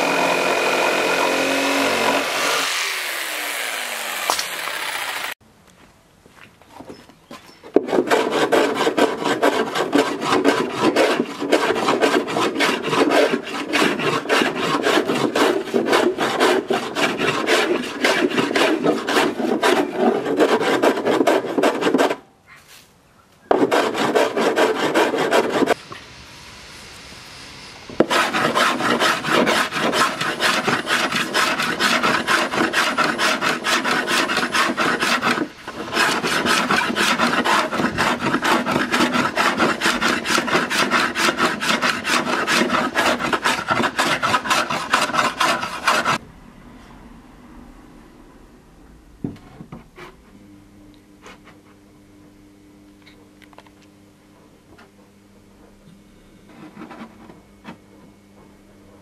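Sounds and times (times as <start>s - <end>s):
hand plane scraping wood: 7.7s - 22.2s, 23.5s - 25.8s, 28.0s - 46.2s.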